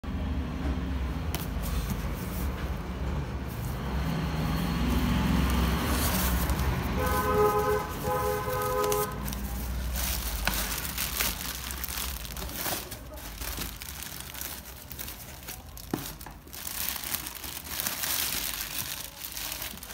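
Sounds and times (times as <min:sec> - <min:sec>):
low traffic rumble: 0:00.0 - 0:19.9
cardboard and plastic wrap rustling: 0:01.4 - 0:19.9
vehicle horn blasts: 0:06.8 - 0:09.4.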